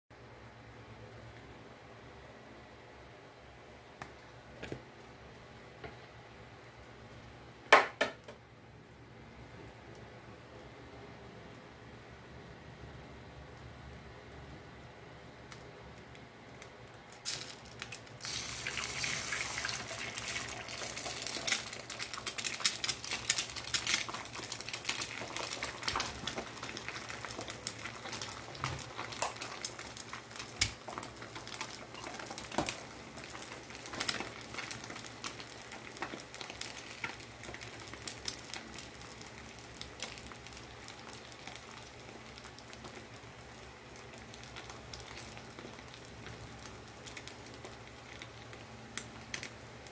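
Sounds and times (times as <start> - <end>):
egg sizzling and crackling: 15.5 - 49.9.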